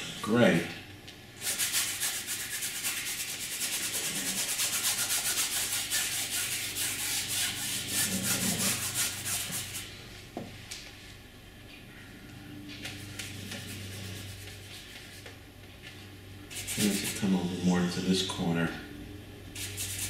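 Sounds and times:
paintbrush scrubbing canvas: 1.4s - 9.9s, 12.8s - 15.3s, 16.5s - 17.3s, 19.6s - 20.0s.

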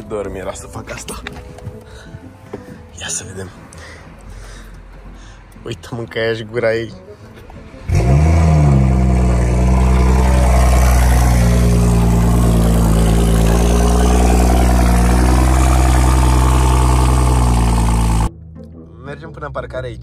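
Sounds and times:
car engine idling: 7.9s - 18.3s.

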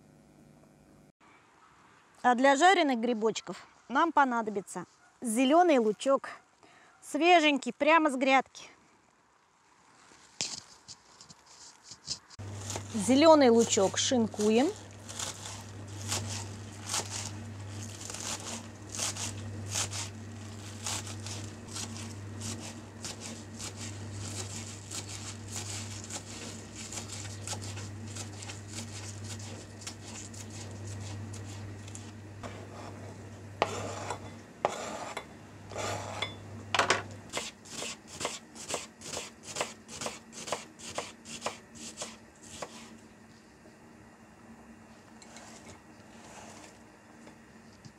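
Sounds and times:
low steady hum: 12.4s - 37.8s
knife chopping on cutting board: 33.6s - 42.8s.

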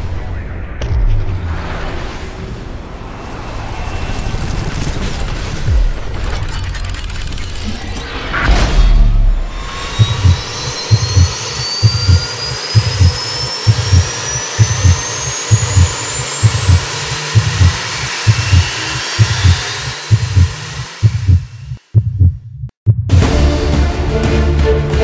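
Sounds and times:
heartbeat-like thumps: 8.8s - 23.4s
rising high whine: 9.2s - 21.9s
steady rushing noise: 9.5s - 21.8s.

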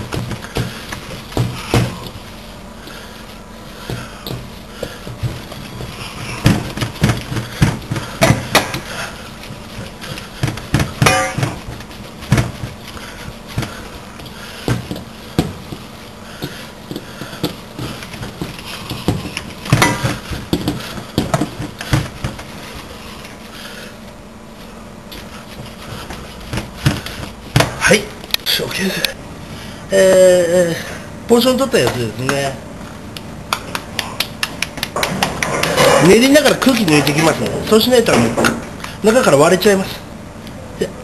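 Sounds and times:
hand kneading wet meat: 0.0s - 29.0s.

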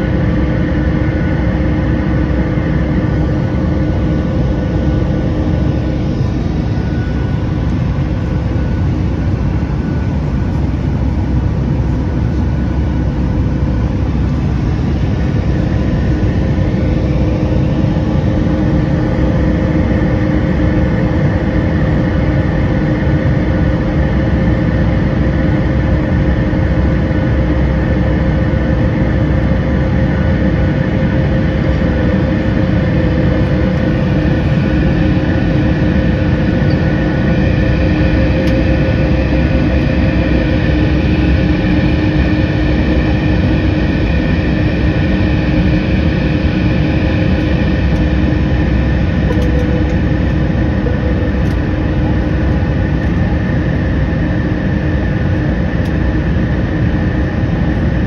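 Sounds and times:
jet engine drone in cabin: 0.0s - 58.0s
steady hum tones: 0.0s - 58.0s.

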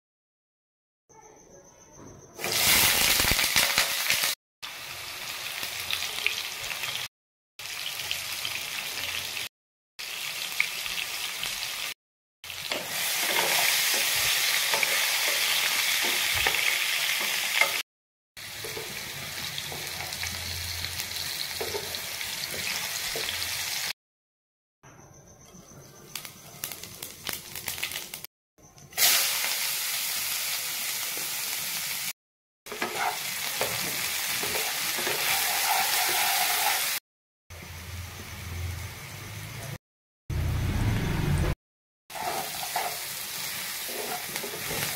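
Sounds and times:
potatoes sizzling in hot oil: 2.4s - 17.8s, 18.4s - 24.0s, 26.2s - 28.3s, 29.0s - 32.1s, 32.7s - 37.0s, 42.1s - 44.9s.

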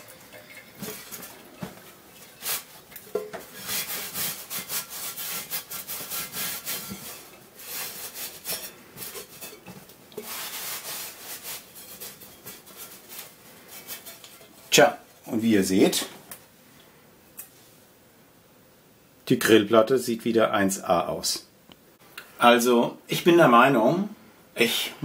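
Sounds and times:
towel rubbing griddle plate: 0.8s - 15.3s.

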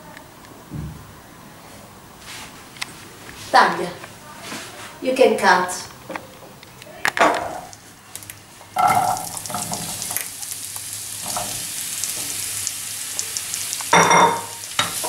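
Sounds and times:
courgette sizzling in hot oil: 8.1s - 15.0s.

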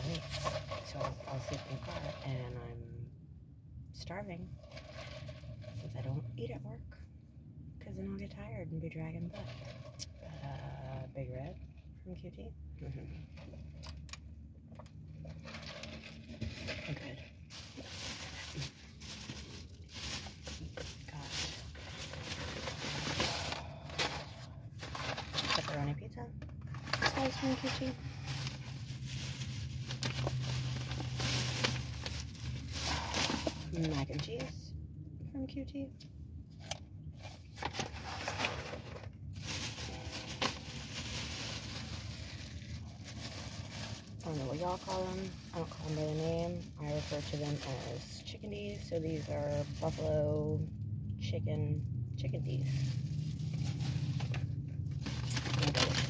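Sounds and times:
food packaging crinkling: 15.0s - 25.8s, 26.6s - 33.9s, 37.5s - 48.2s, 52.6s - 56.0s.

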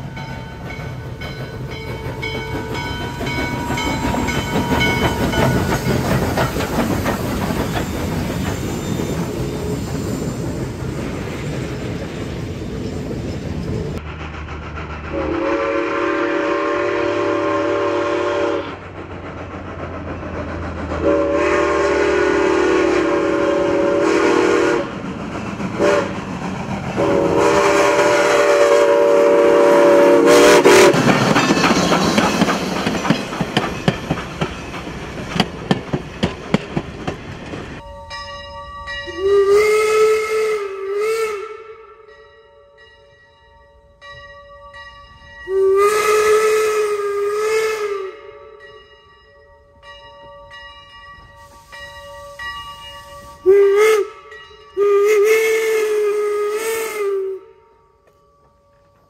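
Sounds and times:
steam locomotive chuffing: 0.0s - 42.2s, 45.0s - 48.9s, 50.4s - 57.6s
steam whistle chord: 15.1s - 18.8s, 21.0s - 24.9s, 25.8s - 26.2s, 27.0s - 31.0s, 37.9s - 42.2s, 45.4s - 48.7s, 51.3s - 58.2s.

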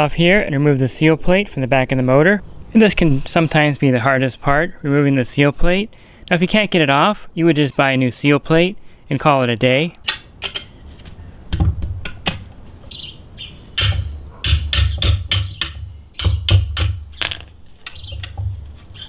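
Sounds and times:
low thumps: 11.5s - 12.6s, 13.7s - 18.8s.

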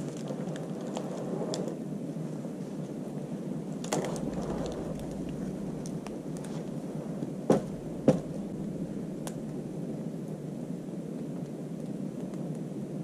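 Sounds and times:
fire crackling: 0.0s - 13.0s
wood fire burning: 0.0s - 13.0s.

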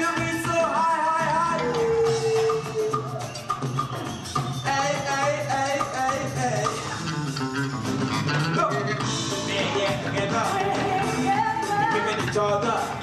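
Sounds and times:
music with singing voice: 0.0s - 13.0s.

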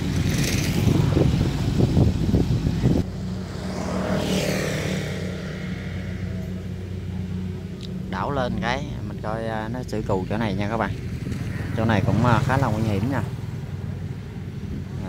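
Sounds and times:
combine harvester engine clattering: 6.3s - 15.0s.

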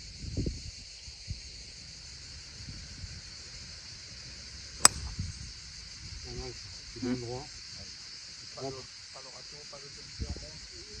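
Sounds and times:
golf club striking ball: 4.8s - 5.2s.

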